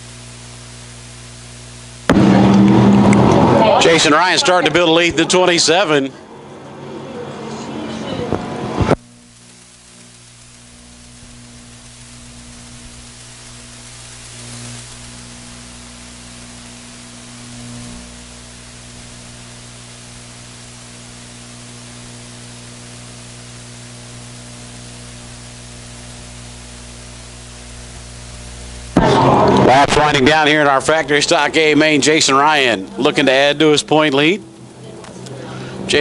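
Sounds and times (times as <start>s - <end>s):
steady hiss: 0.0s - 2.4s, 8.6s - 36.0s
low electrical hum: 0.0s - 36.0s.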